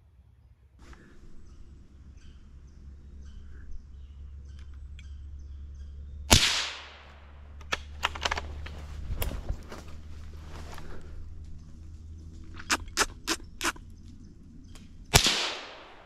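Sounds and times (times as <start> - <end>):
faint bird chirps: 0.8 - 6.3
sharp clicks: 4.5 - 5.2, 6.3 - 9.4, 12.5 - 13.9
rifle shot: 6.3 - 8.4, 15.1 - 16.0
rustling: 7.0 - 14.2.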